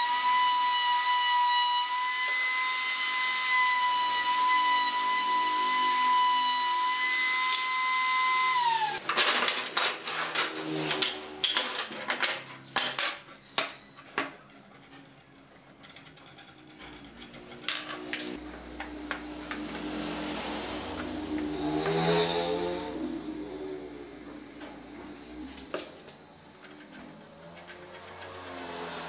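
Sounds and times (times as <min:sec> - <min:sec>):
wooden pieces clacking on workbench: 0:09.0 - 0:15.0.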